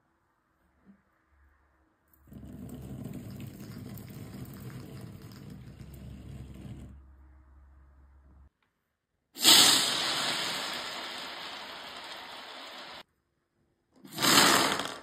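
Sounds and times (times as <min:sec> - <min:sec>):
water beads pouring into tray: 0:09.4 - 0:13.0, 0:14.1 - 0:15.0.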